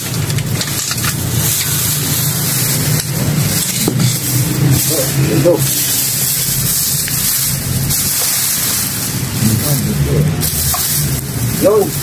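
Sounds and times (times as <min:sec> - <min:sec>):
plastic garbage bag crinkling: 0:00.0 - 0:12.0
steady rushing noise: 0:00.0 - 0:12.0.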